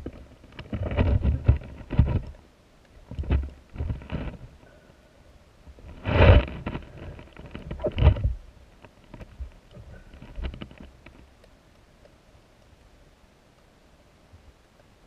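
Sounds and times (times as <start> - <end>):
faint clicks: 8.7 - 13.7.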